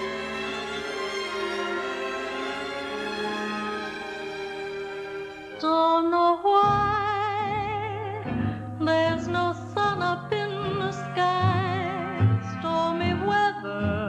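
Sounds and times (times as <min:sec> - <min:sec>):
instrumental accompaniment: 0:00.0 - 0:14.0
woman singing a slow ballad: 0:05.6 - 0:14.0.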